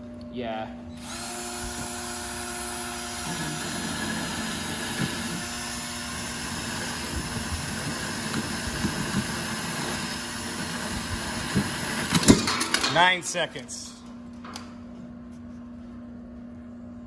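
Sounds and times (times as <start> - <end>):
hole saw rasping rope: 1.0 - 12.2
cordless drill motor hum: 1.0 - 12.3.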